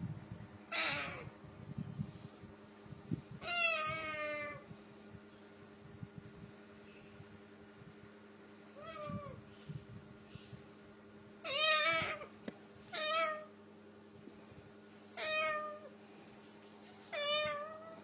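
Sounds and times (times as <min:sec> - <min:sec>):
cockatoo imitating a cat's meow: 0:00.7 - 0:01.3, 0:03.4 - 0:04.6, 0:11.4 - 0:12.3.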